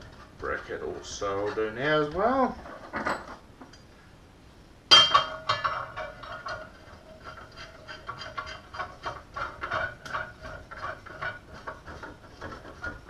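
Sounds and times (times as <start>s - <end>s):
metal parts clanking: 1.4s - 3.4s.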